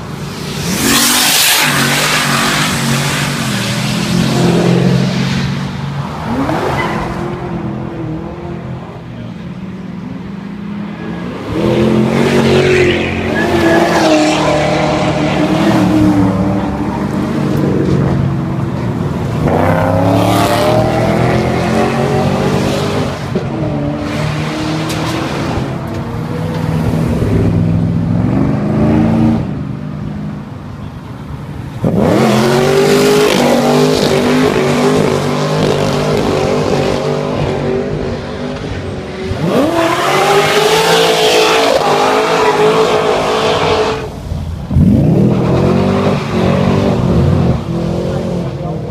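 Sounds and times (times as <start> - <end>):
car engine revving hard: 39.3 - 44.1.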